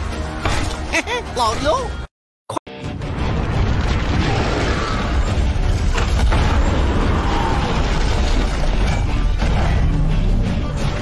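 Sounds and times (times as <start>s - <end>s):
background music: 0.0s - 2.1s, 2.7s - 11.0s
rubble crashing: 3.1s - 9.9s.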